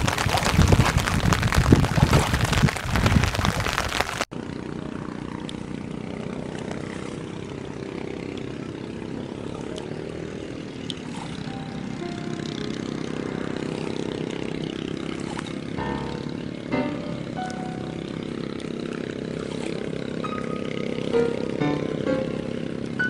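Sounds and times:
rain: 0.0s - 4.3s
wind buffeting microphone: 0.0s - 4.3s
engine drone: 0.0s - 23.0s.

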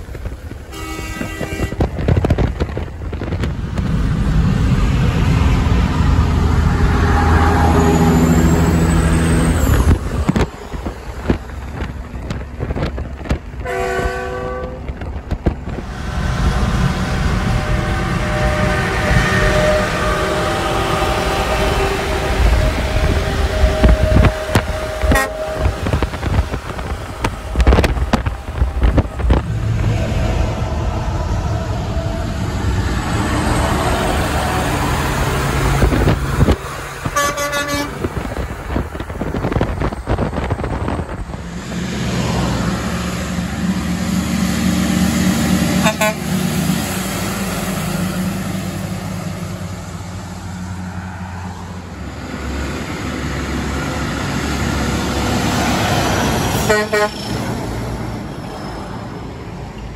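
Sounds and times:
diesel engines: 0.0s - 59.9s
truck air horn blasts: 0.7s - 2.4s, 13.6s - 14.9s, 16.6s - 26.6s, 36.4s - 38.2s, 45.7s - 46.5s, 56.5s - 57.4s.

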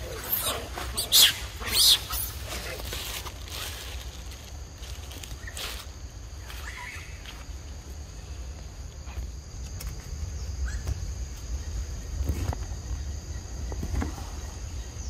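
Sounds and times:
insect drone: 0.0s - 15.0s.

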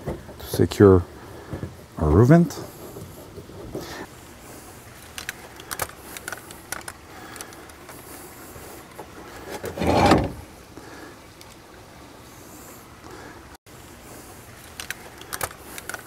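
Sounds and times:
rubbing scrape on wood: 9.4s - 10.4s
light clicks of screws: 14.6s - 16.0s.

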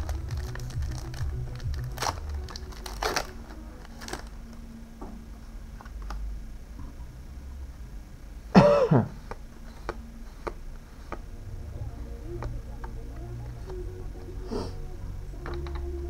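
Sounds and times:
man clearing his throat: 8.5s - 9.2s.

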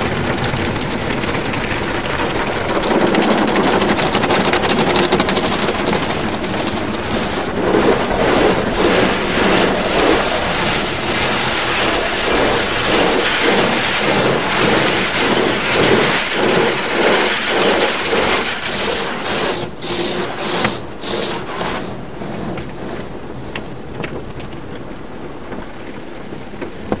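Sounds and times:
car wash brushes swishing: 2.9s - 23.6s
water running on glass: 3.6s - 23.0s.

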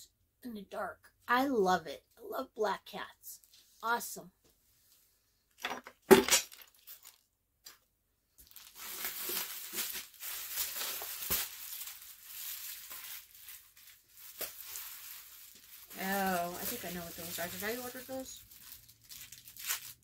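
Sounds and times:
packaging crinkling and tearing: 6.3s - 7.3s, 8.4s - 20.0s.

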